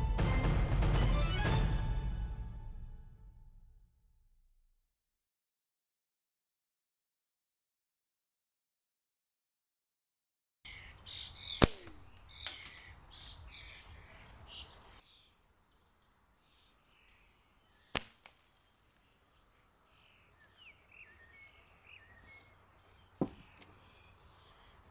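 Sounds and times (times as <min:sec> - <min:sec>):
birds chirping: 0:10.7 - 0:24.9
sharp crack of shot hitting metal: 0:11.5 - 0:12.9, 0:18.0 - 0:18.4.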